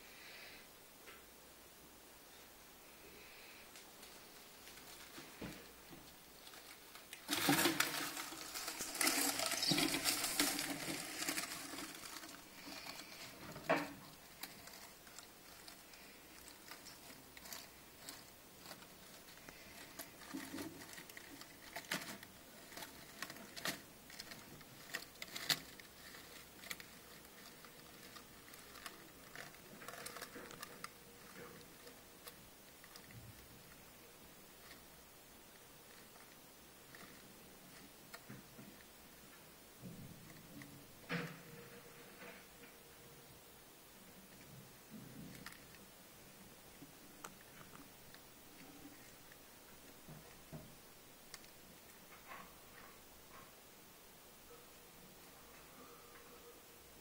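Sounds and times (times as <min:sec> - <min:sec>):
dry leaf litter rustling: 0:06.4 - 0:31.3.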